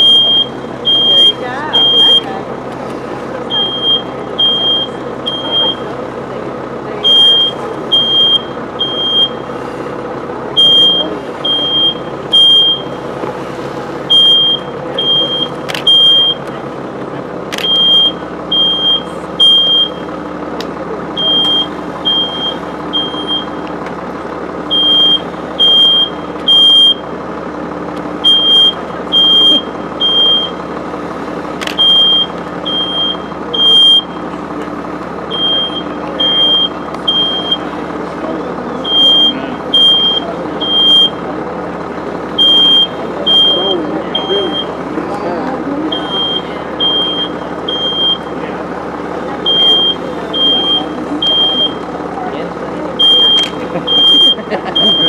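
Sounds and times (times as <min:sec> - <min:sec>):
smoke alarm beeping: 0:00.0 - 0:02.3, 0:03.5 - 0:05.8, 0:07.0 - 0:09.5, 0:10.6 - 0:13.0, 0:14.1 - 0:16.5, 0:17.6 - 0:20.1, 0:21.2 - 0:23.6, 0:24.7 - 0:27.0, 0:28.2 - 0:30.6, 0:31.7 - 0:34.3, 0:35.3 - 0:37.7, 0:38.8 - 0:41.2, 0:42.4 - 0:44.8, 0:45.9 - 0:48.4, 0:49.4 - 0:51.8, 0:53.0 - 0:55.0
steady background noise: 0:00.0 - 0:55.0
sharp clicks: 0:15.5 - 0:16.6, 0:17.5 - 0:17.8, 0:31.6 - 0:32.5.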